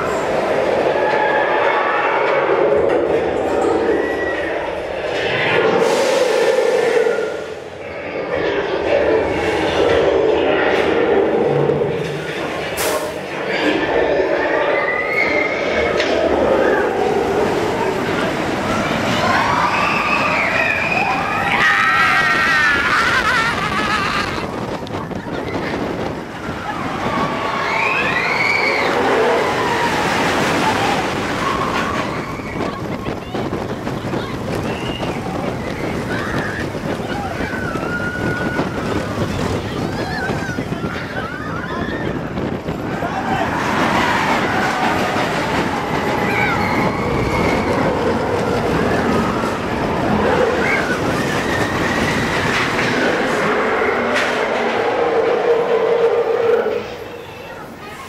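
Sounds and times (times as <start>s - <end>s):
roller coaster rumbling on track: 0.0s - 58.0s
wind rush on microphone: 15.6s - 57.0s.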